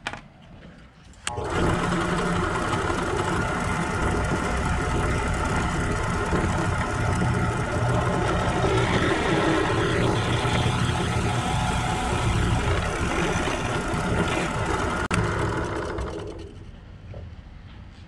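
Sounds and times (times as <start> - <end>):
drill press boring into plastic pipe: 1.3 - 16.7.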